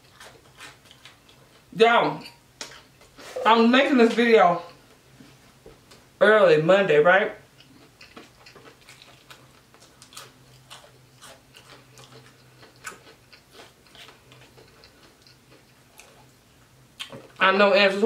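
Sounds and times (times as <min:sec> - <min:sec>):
low steady hum: 0:00.0 - 0:18.0
chewing clicks and smacks: 0:07.6 - 0:16.3.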